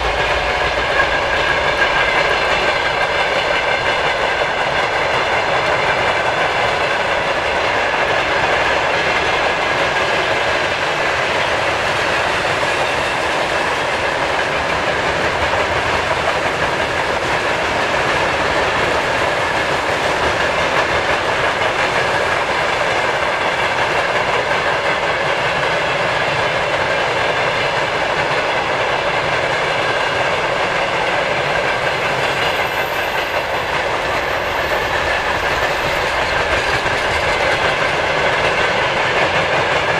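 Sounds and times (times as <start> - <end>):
freight train wheels clattering: 0.0 - 39.9.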